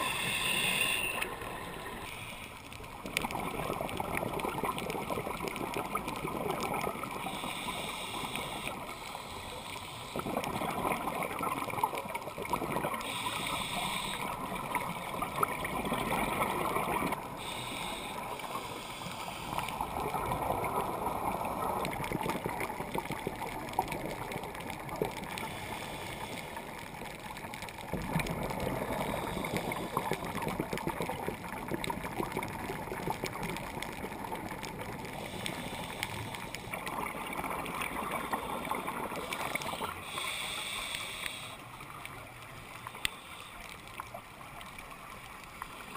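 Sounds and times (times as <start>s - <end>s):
regulator breathing hiss: 0.0s - 2.6s, 7.2s - 10.2s, 13.0s - 14.5s, 17.3s - 19.9s, 25.4s - 26.7s, 35.2s - 36.8s, 39.2s - 41.8s, 42.8s - 43.8s
underwater bubbling gurgle: 0.0s - 45.9s.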